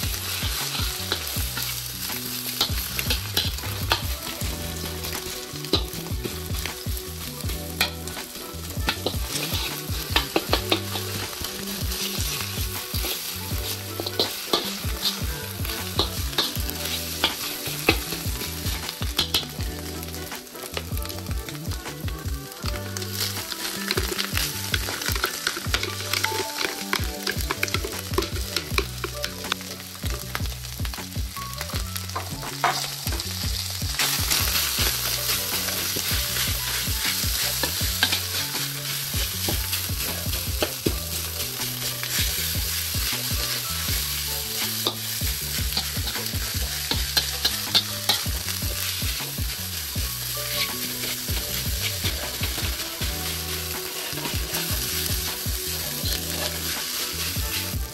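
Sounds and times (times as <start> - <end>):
food sizzling in wok: 0.0 - 57.9
spatula scraping pan: 34.0 - 57.9.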